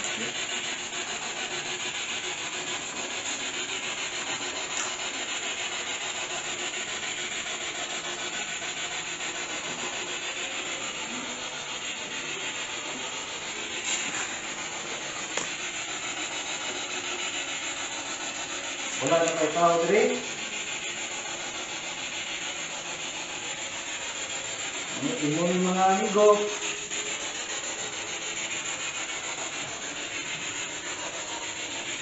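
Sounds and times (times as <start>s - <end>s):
pulsing hissing static: 0.0s - 32.0s.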